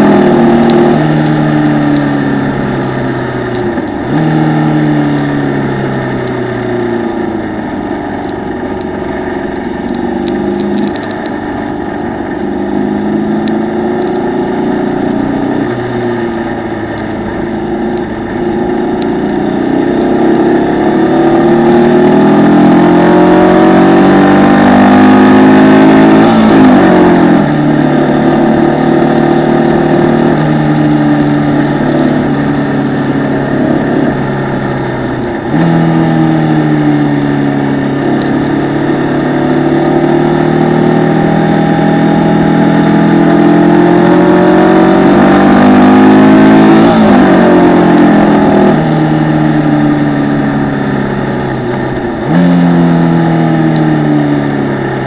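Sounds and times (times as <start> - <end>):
racing car engine revving: 0.0 - 55.0.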